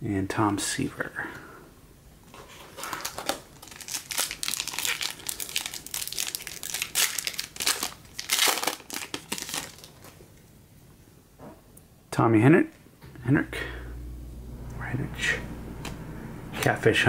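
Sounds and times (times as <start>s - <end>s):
wrapper crinkling and tearing: 2.4s - 10.2s.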